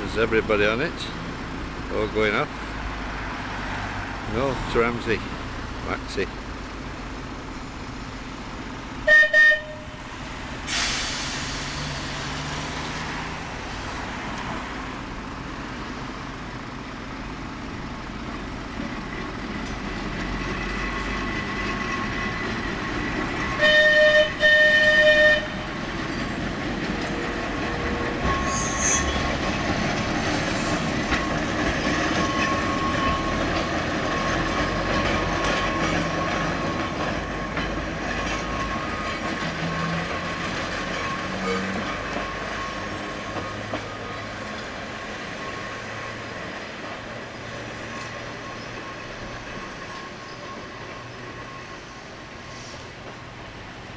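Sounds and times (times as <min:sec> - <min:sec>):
wheels rumbling on rails: 0:00.0 - 0:53.9
tram horn toots: 0:09.0 - 0:10.2, 0:22.0 - 0:29.4, 0:40.9 - 0:43.2.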